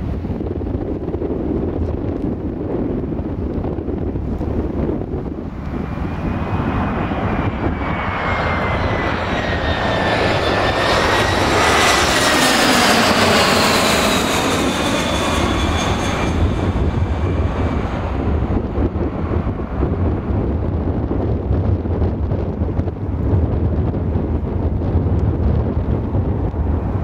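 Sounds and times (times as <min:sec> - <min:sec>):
jet engines whining overhead: 0:00.0 - 0:27.0
wind rumble on microphone: 0:00.0 - 0:27.0.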